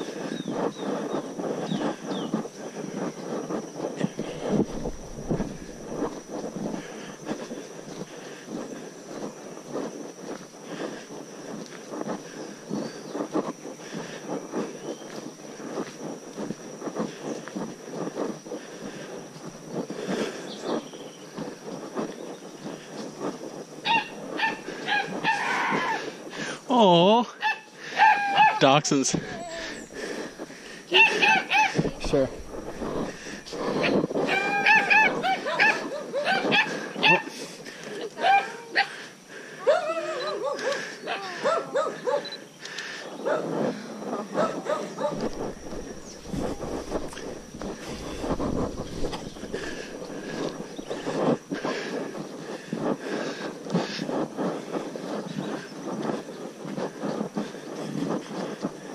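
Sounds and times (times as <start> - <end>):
footsteps on gravel: 0.0 - 26.5, 28.1 - 39.0, 40.4 - 58.9
high insect buzz: 0.0 - 39.4, 40.1 - 52.6
dog yelping: 23.8 - 26.0, 27.4 - 28.6, 31.0 - 31.8, 34.3 - 37.2, 39.7 - 42.3.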